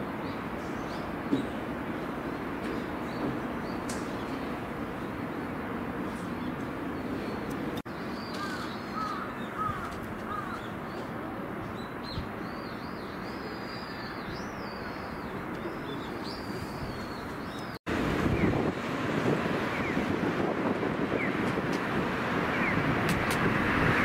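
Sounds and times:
birds chirping and twittering: 0.2 - 18.7, 19.6 - 20.1, 22.5 - 22.9
rushing wind noise: 16.4 - 24.0.

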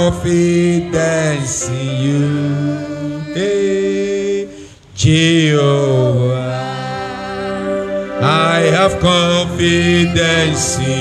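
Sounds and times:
man singing gospel: 0.0 - 7.2, 8.1 - 11.0.

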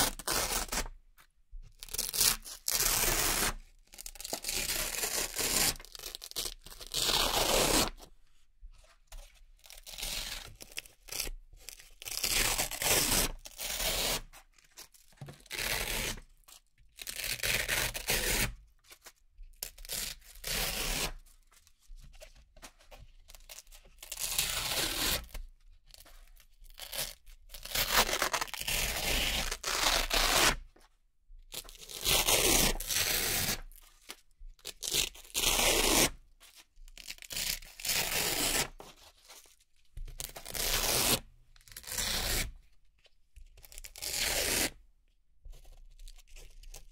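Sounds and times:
velcro tearing apart: 4.2 - 7.9, 26.8 - 30.6.

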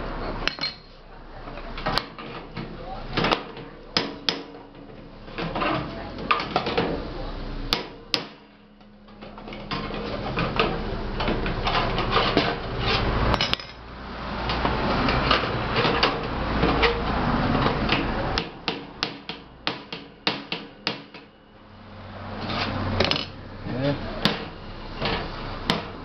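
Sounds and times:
sharp metal knocks: 7.7 - 8.5, 18.4 - 21.4
tools scraping sheet metal: 9.6 - 13.8, 22.4 - 23.4.

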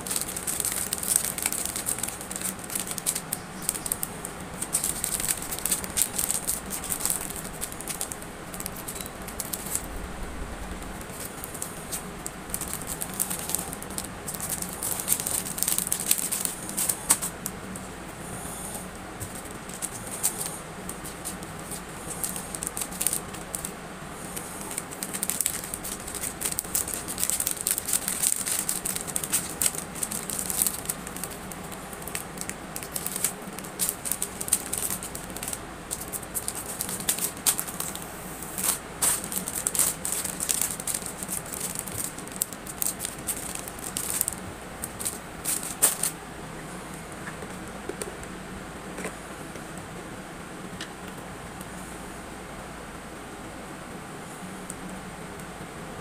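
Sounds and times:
faint low hum: 0.0 - 56.0
clicks and rustles of packing: 38.6 - 46.2.

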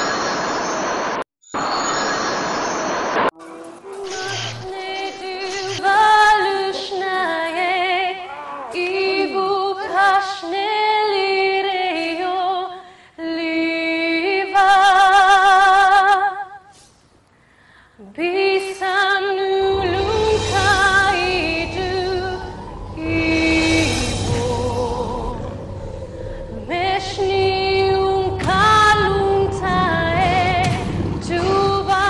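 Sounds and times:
woman singing with vibrato: 3.4 - 16.7, 18.0 - 32.0
low accompaniment: 19.5 - 32.0.

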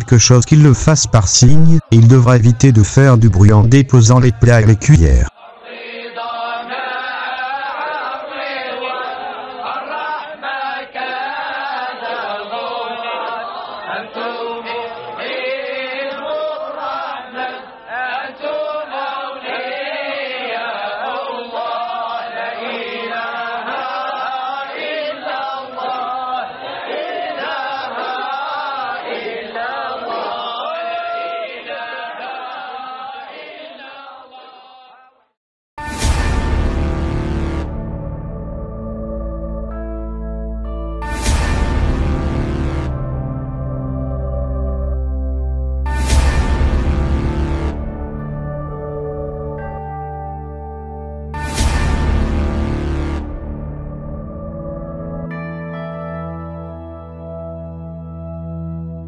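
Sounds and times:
group chanting: 5.3 - 35.4.

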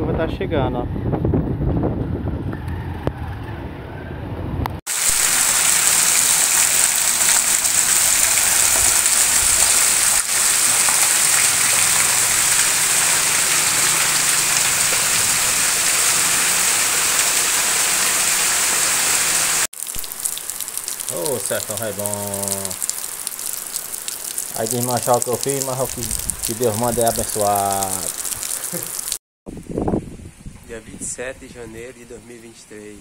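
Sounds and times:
wind on microphone: 0.0 - 3.4, 25.8 - 27.3, 29.5 - 31.8
heavy rain pouring: 4.9 - 29.2
motorcycle passing: 10.6 - 19.6.

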